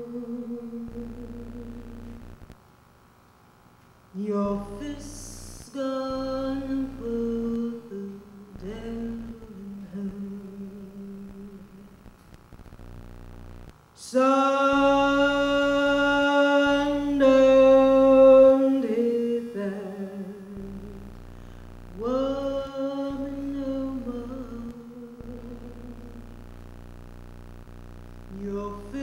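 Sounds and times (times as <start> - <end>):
woman singing unaccompanied: 0.0 - 2.2, 4.1 - 12.0, 14.0 - 21.1, 21.9 - 26.4, 28.3 - 29.0.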